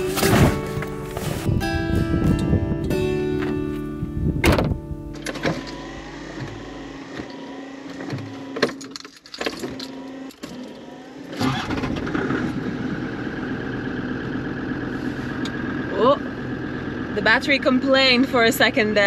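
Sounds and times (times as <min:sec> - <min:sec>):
car engine starting: 0:00.0 - 0:19.0.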